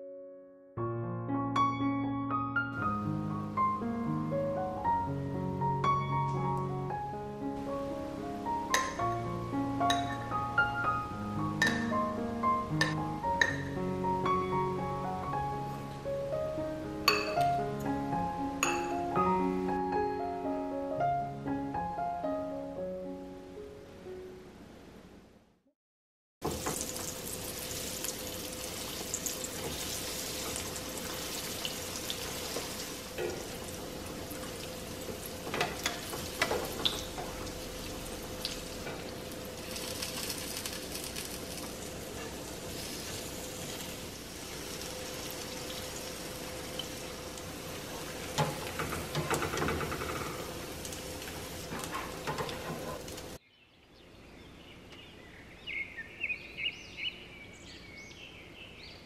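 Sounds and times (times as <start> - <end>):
food sizzling in oil: 26.4 - 53.4.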